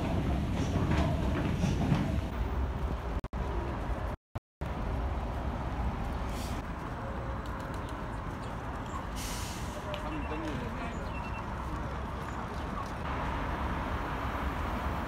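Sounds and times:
moving vehicle rumble: 0.0 - 15.0
short hisses: 9.2 - 9.8.

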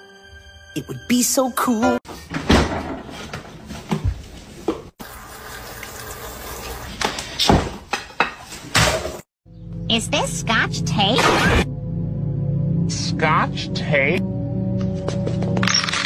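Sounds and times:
knocks and clatters: 2.1 - 4.9
tap water running and splashing: 5.0 - 7.6.

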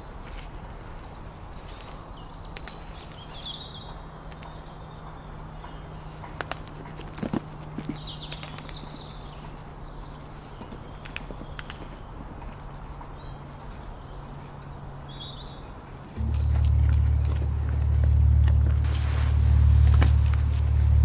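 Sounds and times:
birds chirping: 0.0 - 21.0
steady low hum: 12.8 - 21.0.

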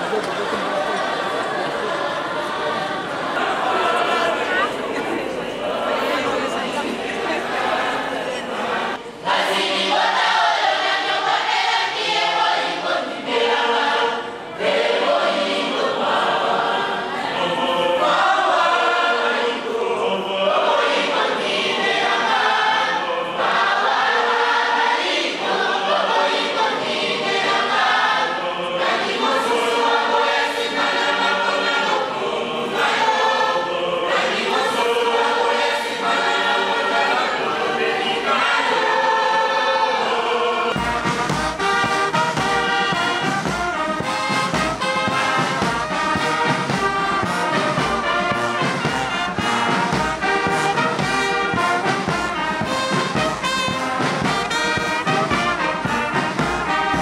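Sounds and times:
choir singing: 0.0 - 57.0
brass band playing: 3.3 - 57.0
snare drums: 40.7 - 57.0.

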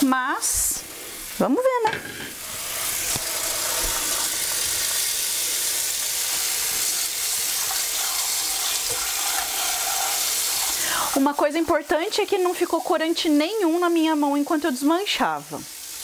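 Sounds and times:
faucet running into a bowl: 2.4 - 11.6.

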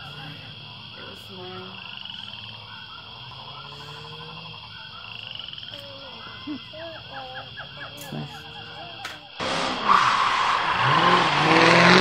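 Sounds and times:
small animals chirping and croaking: 0.0 - 9.4.

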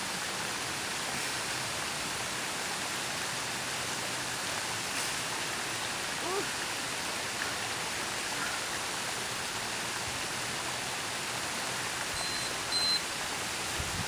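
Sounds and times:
water rushing from waterfall: 0.0 - 14.0
short high beeps: 12.2 - 13.0.

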